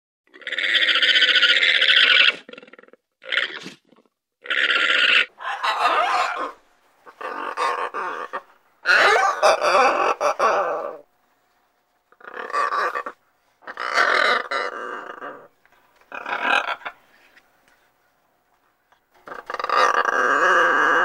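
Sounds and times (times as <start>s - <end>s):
macaw squawking: 5.0s - 11.0s, 12.2s - 14.8s, 16.1s - 17.1s.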